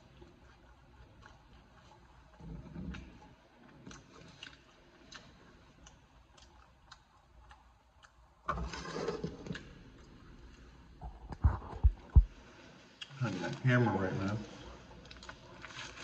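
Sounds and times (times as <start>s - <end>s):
wet chewing and finger-licking: 0.0s - 8.5s, 14.8s - 16.0s.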